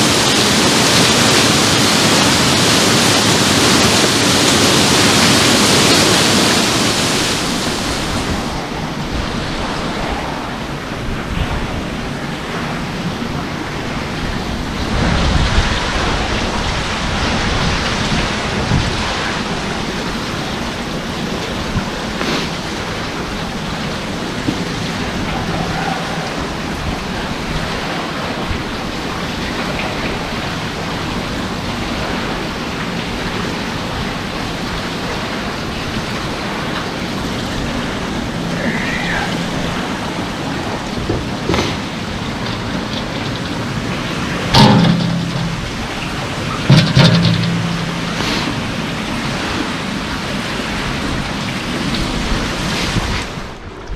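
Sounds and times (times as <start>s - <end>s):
water splashing onto waterwheel: 0.0s - 53.9s
scattered knocks: 41.0s - 49.8s.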